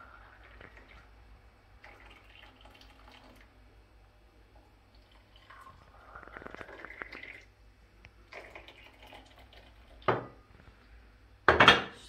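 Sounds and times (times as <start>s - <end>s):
hot water pouring into a glass: 1.8s - 3.6s, 4.6s - 7.5s, 8.3s - 10.1s.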